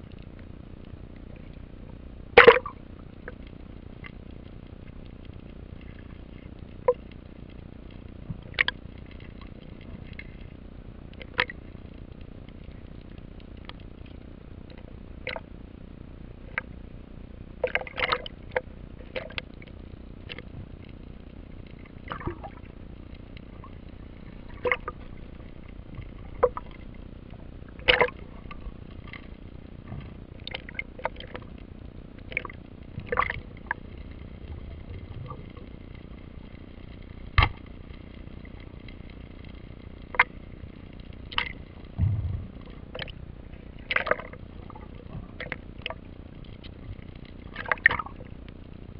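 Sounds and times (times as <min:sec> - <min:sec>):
speargun clicks and knocks underwater: 0:02.4 - 0:03.4, 0:08.3 - 0:10.5, 0:11.2 - 0:11.6, 0:14.7 - 0:15.4, 0:17.6 - 0:21.0, 0:24.5 - 0:27.0, 0:27.8 - 0:29.3, 0:29.9 - 0:31.4, 0:32.2 - 0:33.8, 0:37.3 - 0:37.7, 0:41.0 - 0:48.6.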